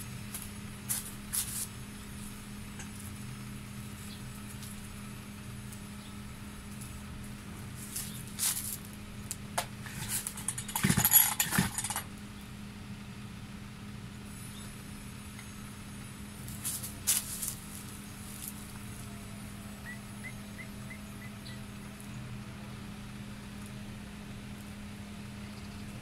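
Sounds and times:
metallic clattering and rattling: 9.6s - 12.1s.

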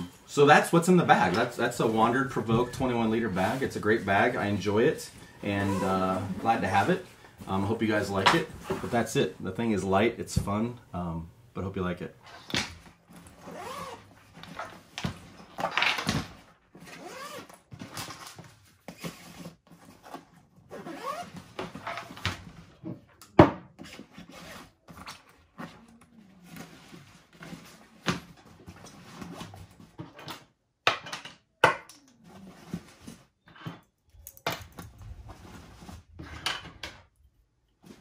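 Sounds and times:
backpack fabric rustling: 13.1s - 14.6s.

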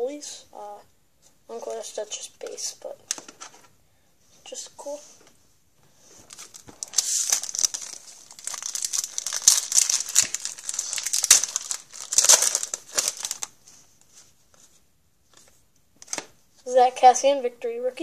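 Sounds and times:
wrapper tearing and crinkling: 6.3s - 13.6s.

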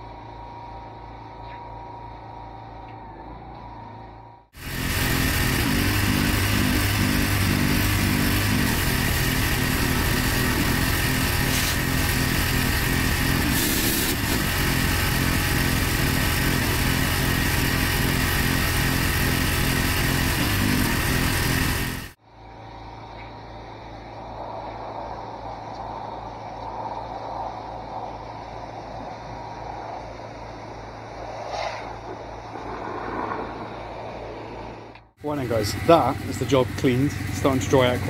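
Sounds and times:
pressure washer engine throb: 4.5s - 23.0s, 35.2s - 38.0s
water jet spraying on paving: 11.4s - 15.9s.

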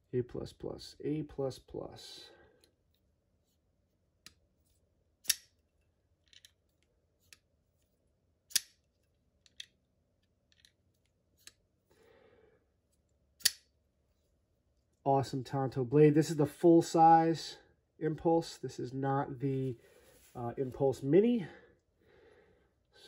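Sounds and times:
folding knife metallic snaps: 5.2s - 5.6s, 8.5s - 8.9s, 13.4s - 13.7s.

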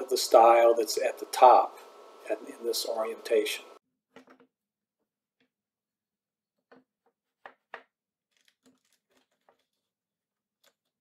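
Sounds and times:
wooden knocks and clicks: 4.1s - 4.5s, 6.6s - 9.7s.

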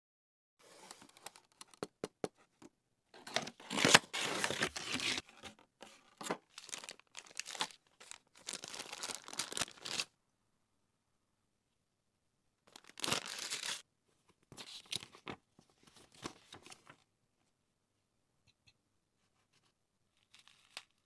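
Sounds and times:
plastic packaging crinkling: 3.2s - 5.2s, 6.5s - 10.1s, 12.7s - 13.8s.

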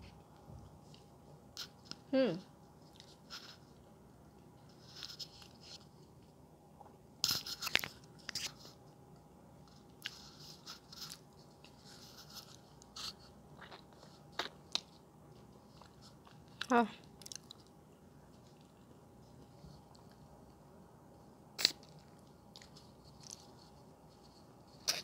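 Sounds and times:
wet chewing and lip smacks: 15.8s - 17.8s.

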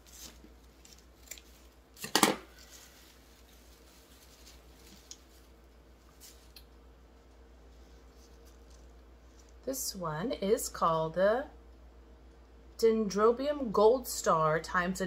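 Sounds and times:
scissors snipping wrapping: 0.2s - 2.2s.

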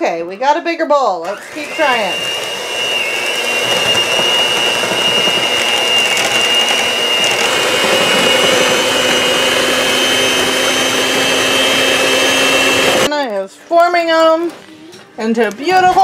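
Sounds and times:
electric hand mixer whining: 1.2s - 13.1s.

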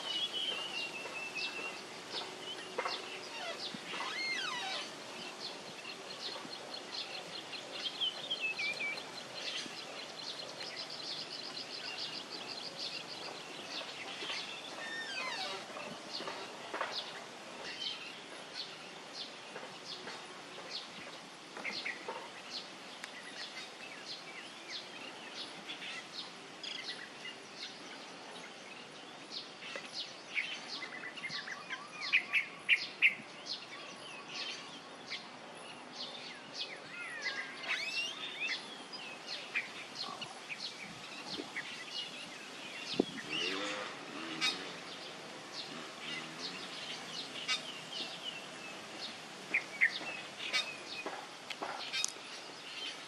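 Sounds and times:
outdoor background hiss: 0.0s - 53.0s
small birds chirping: 0.0s - 53.0s.

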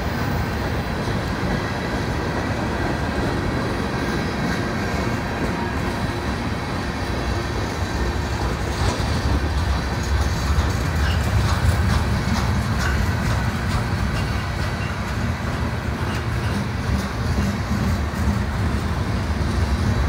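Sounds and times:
freight train rumbling past: 0.0s - 20.0s
wheels clicking over rails: 7.1s - 20.0s.

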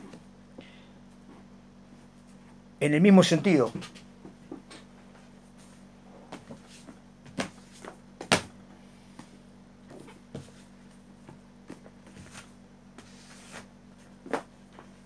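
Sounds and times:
books rustling: 9.9s - 15.0s.

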